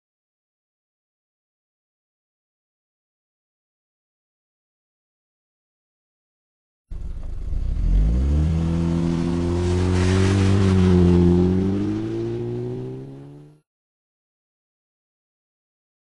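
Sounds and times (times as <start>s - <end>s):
car engine accelerating hard: 6.9s - 13.6s
tyres on loose gravel: 9.1s - 11.8s.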